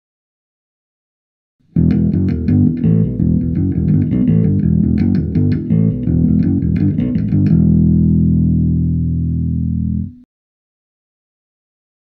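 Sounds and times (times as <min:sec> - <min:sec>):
bass and guitar theme music: 0:01.7 - 0:10.2.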